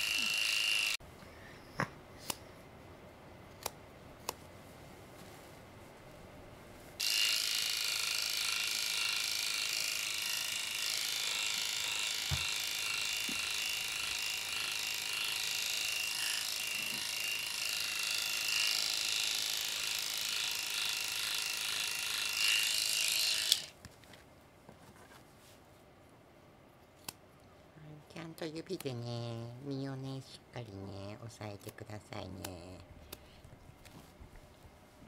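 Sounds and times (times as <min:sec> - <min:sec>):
electric clippers humming: 0:00.0 - 0:01.0, 0:07.0 - 0:23.8.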